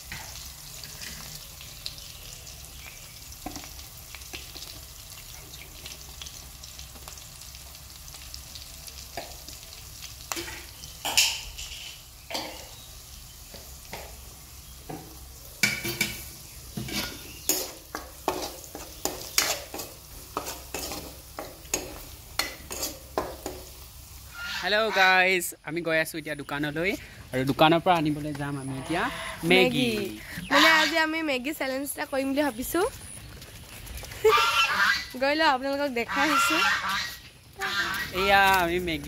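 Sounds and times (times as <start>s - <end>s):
onions sizzling in oil: 0.0s - 33.2s, 34.2s - 39.0s
spatula scraping pan: 15.7s - 23.7s.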